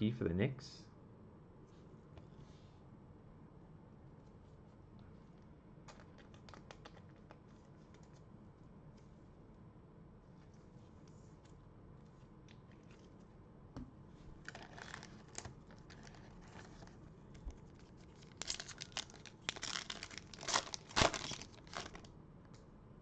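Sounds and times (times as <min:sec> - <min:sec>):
foil wrapper crinkling and tearing: 0:14.4 - 0:22.1.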